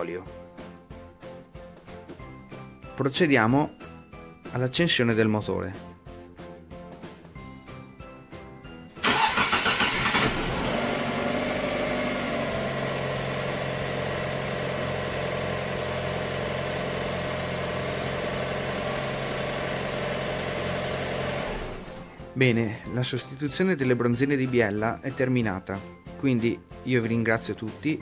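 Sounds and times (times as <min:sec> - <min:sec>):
starter motor cranking: 0:09.0 - 0:22.0
car engine idling: 0:09.0 - 0:22.1.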